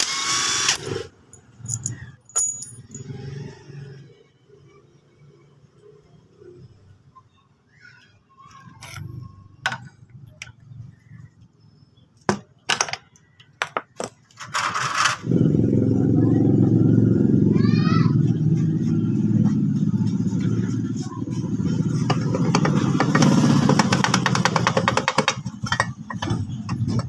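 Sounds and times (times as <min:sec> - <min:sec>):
metal clicks from tools: 0:00.7 - 0:03.2, 0:08.5 - 0:10.6
motorcycle engine running: 0:15.2 - 0:27.0.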